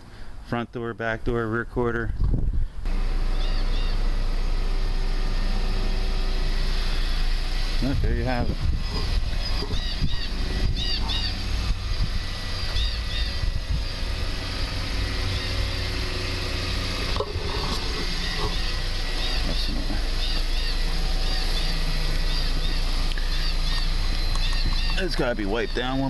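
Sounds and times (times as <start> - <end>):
steady low rumble: 0.0 - 26.0
small birds chirping: 3.3 - 4.1, 6.6 - 26.0.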